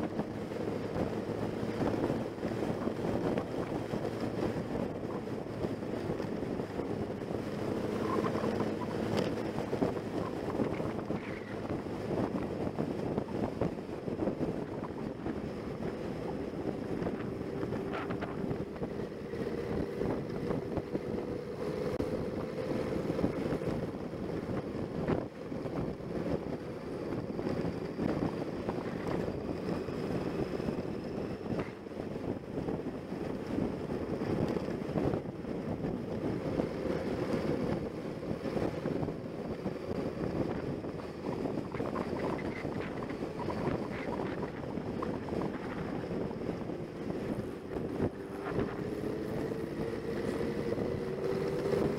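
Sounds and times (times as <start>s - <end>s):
motorcycle engine running: 0.0s - 51.9s
wind buffeting microphone: 0.0s - 51.9s.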